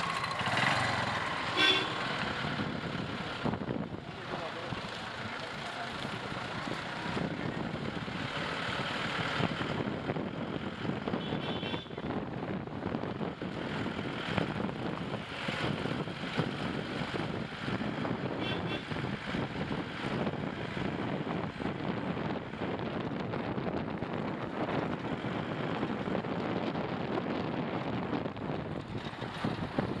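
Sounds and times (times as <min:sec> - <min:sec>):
tyre and road noise: 0:00.0 - 0:30.0
wind rush on microphone: 0:02.4 - 0:04.9, 0:06.4 - 0:08.4, 0:09.1 - 0:30.0.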